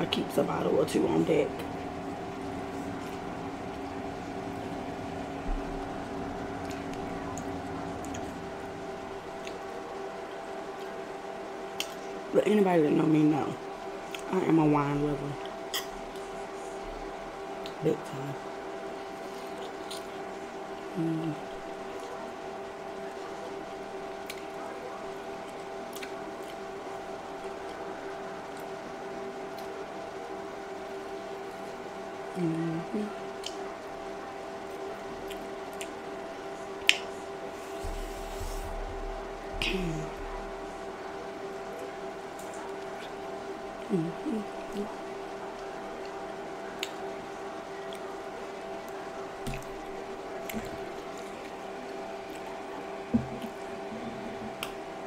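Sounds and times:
steady mechanical hum: 0.0s - 55.0s
woman humming: 20.9s - 21.6s, 32.3s - 33.2s, 39.5s - 40.4s, 43.8s - 45.0s.

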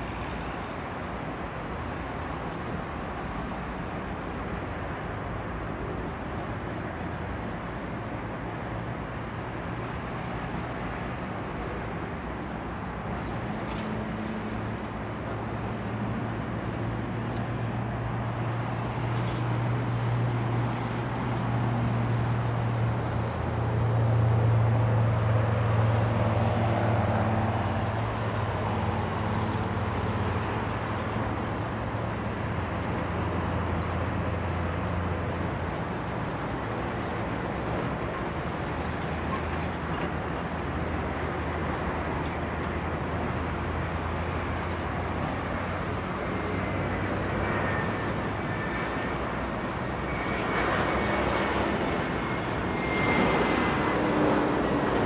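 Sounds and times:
traffic noise: 0.0s - 55.0s
low engine drone: 16.1s - 38.5s, 40.7s - 55.0s.

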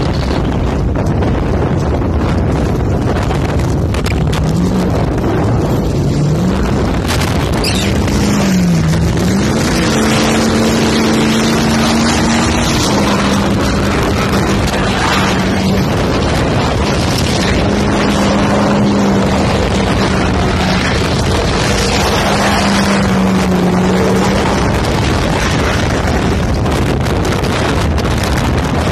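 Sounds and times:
wind on microphone: 0.0s - 28.9s
truck engine revving hard: 2.5s - 28.9s.

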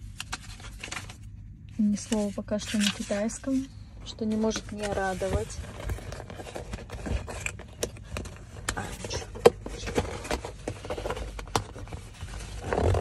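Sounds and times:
cardboard packaging handled: 0.0s - 1.3s, 4.2s - 13.0s
paper rustling: 0.0s - 13.0s.

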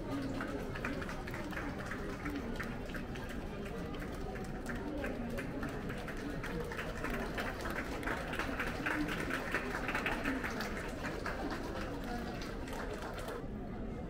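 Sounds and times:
crowd clapping: 0.0s - 13.4s.

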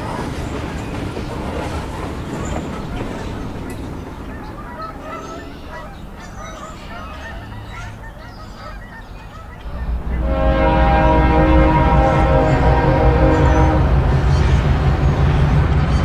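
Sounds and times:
chirping honking bird calls: 0.0s - 16.0s
low rumble: 9.6s - 16.0s.

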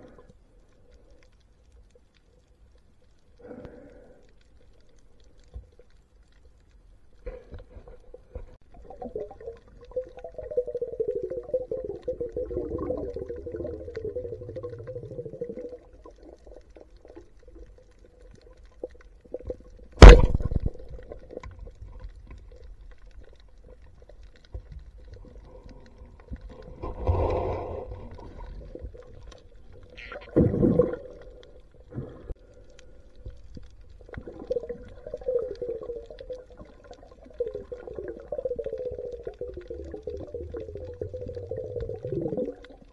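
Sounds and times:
speargun crack underwater: 20.0s - 21.6s.

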